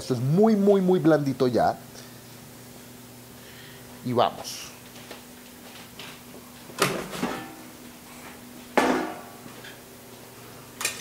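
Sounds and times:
metal cookware clanking: 8.8s - 9.4s.

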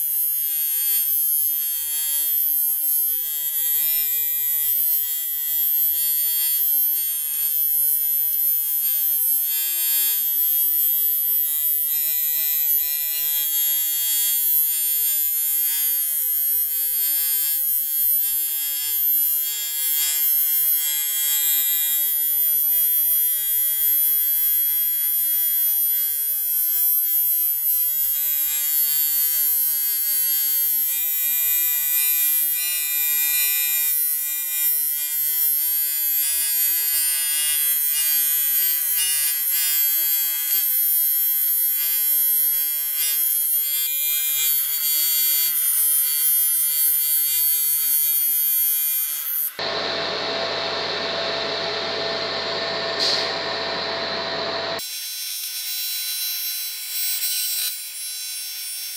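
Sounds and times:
welding arc buzzing: 0.0s - 58.9s.

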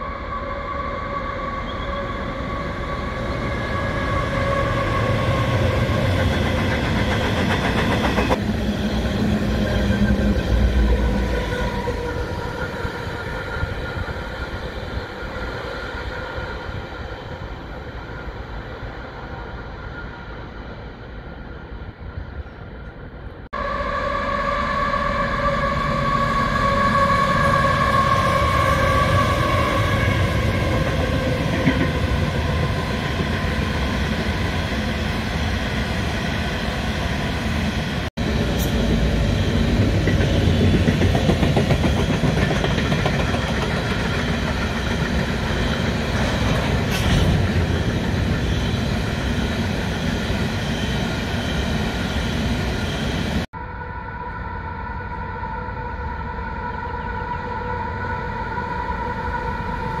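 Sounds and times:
diesel locomotive engine drone: 0.0s - 60.0s
train wheels rumbling on rail: 1.6s - 19.5s, 25.5s - 53.5s.

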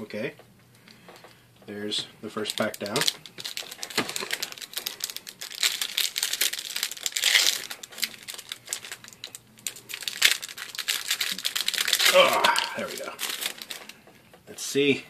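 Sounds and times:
foil wrapper crinkling: 2.4s - 14.0s.

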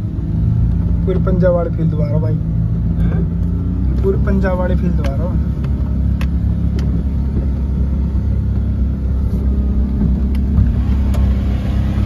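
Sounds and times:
engine rumbling under load: 0.0s - 12.0s
mud taps on windscreen: 4.9s - 7.6s.

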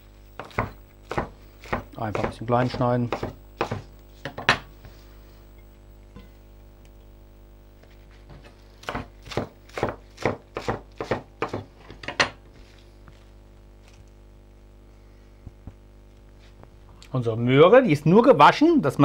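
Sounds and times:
knife chopping on wooden board: 0.4s - 4.7s, 8.3s - 12.4s.

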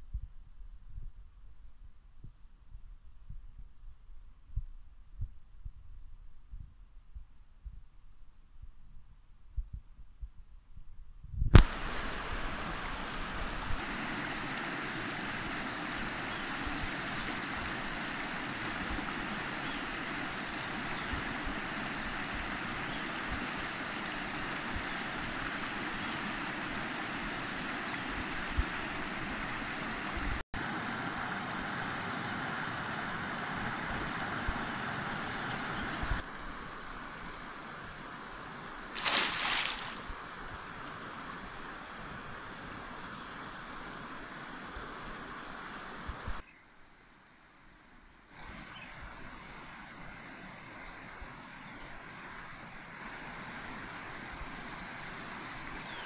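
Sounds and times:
river rushing: 11.6s - 46.2s.

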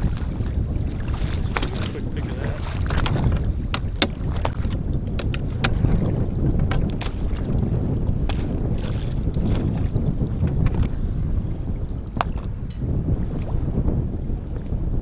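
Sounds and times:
wind buffeting microphone: 0.0s - 15.0s
knocks and clicks on boat deck: 1.1s - 2.0s, 2.6s - 7.6s, 8.2s - 11.0s, 12.2s - 12.8s.

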